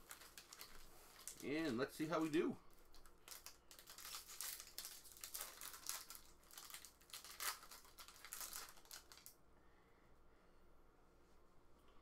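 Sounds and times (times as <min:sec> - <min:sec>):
foil wrapper crinkling: 0:00.0 - 0:09.4.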